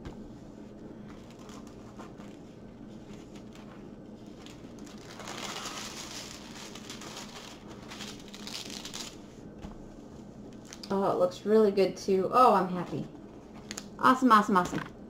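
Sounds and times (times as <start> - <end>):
plastic film crinkling: 1.1 - 9.4, 10.4 - 10.9.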